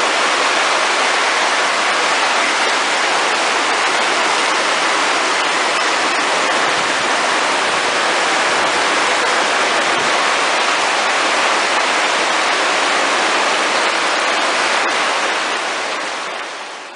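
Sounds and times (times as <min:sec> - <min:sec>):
runoff water pouring: 0:00.0 - 0:16.8
heavy rain on a metal roof: 0:00.0 - 0:16.9.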